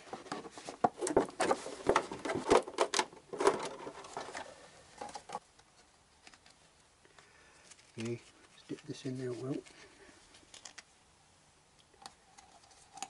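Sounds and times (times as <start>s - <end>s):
plastic bottle crackling: 0.0s - 5.4s.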